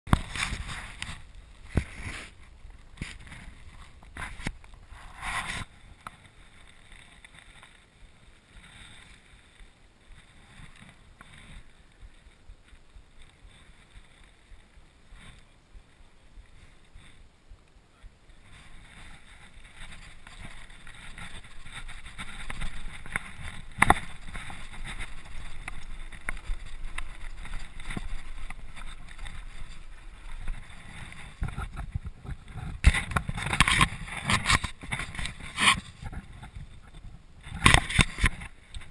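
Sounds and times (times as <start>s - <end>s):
wind noise on microphone: 0.1s - 38.9s
bike tyres rumbling on gravel: 18.3s - 38.9s
bike rattle: 18.4s - 38.9s.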